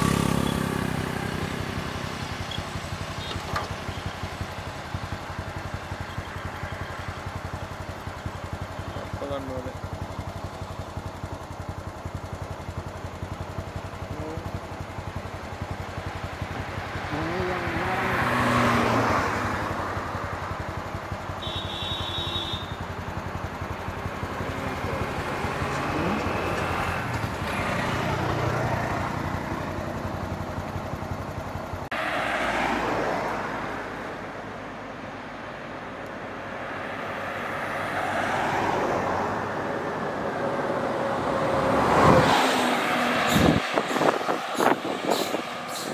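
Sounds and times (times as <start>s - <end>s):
cars passing: 0.0s - 10.4s, 13.4s - 21.6s, 22.2s - 45.9s
motorcycles passing: 0.0s - 45.9s.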